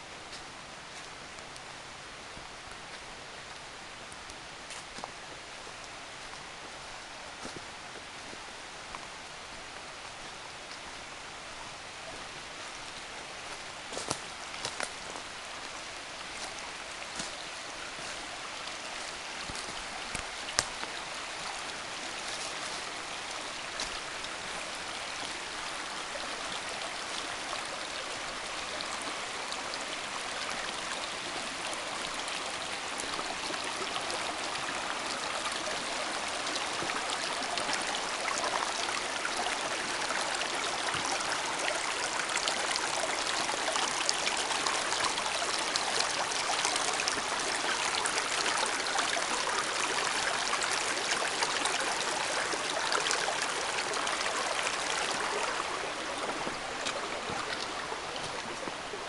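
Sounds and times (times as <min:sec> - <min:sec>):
brook running over rocks: 0:00.0 - 0:59.0.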